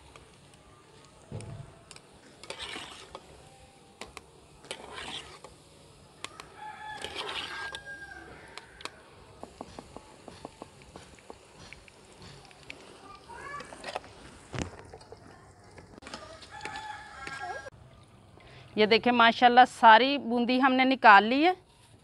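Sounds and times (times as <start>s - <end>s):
rooster crowing: 6.3s - 8.8s, 16.1s - 17.7s.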